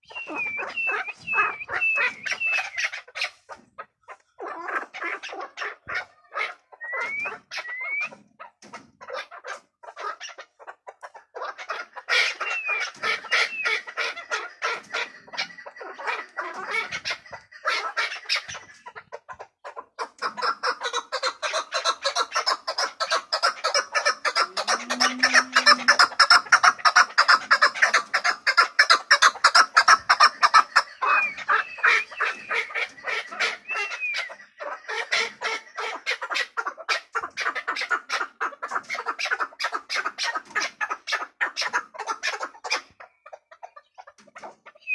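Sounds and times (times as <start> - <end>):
partridge clucking calls: 0.0 - 44.9.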